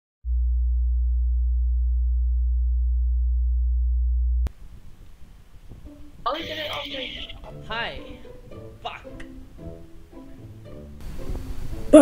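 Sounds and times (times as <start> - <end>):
deep electronic sine tone: 0.2 - 4.5
low rumble: 0.3 - 4.8
faint background hiss: 4.5 - 12.0.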